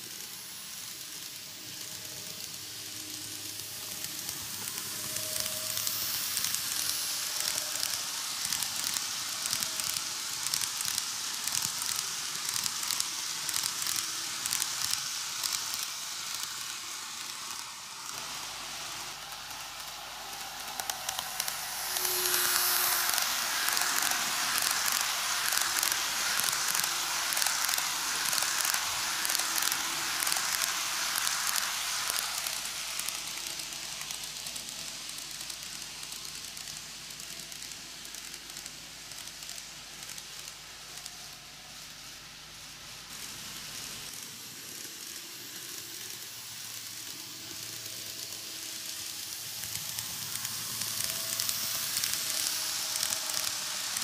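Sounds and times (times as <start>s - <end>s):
model train wheels rattling on rails: 0.0s - 54.0s.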